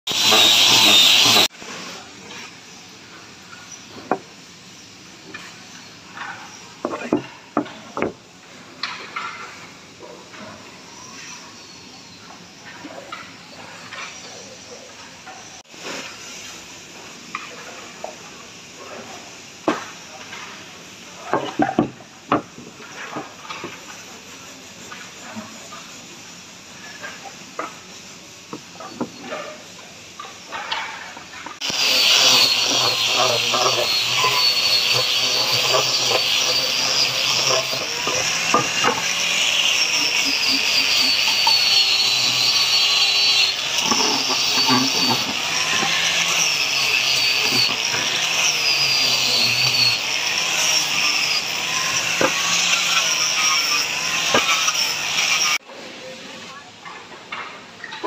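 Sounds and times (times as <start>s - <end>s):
sandpaper scratching on wood: 0.1s - 1.5s, 31.6s - 50.0s.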